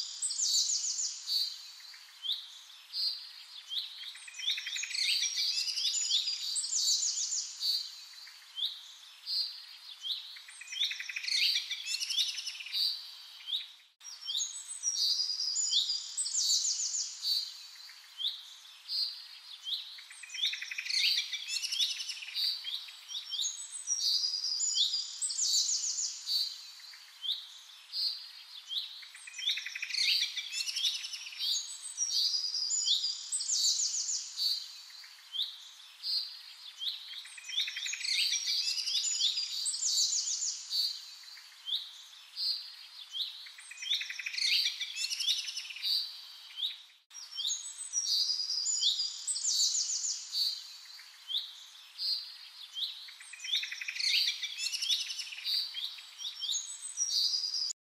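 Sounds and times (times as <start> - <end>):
birds singing and chirping: 0.0 - 57.8.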